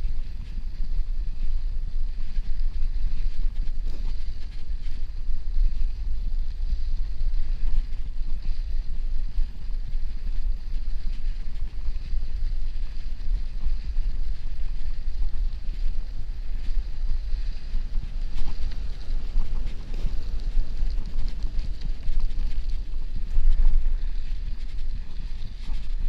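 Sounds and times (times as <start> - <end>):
wind buffeting microphone: 0.0 - 26.0
tyres rolling over snow: 9.3 - 26.0.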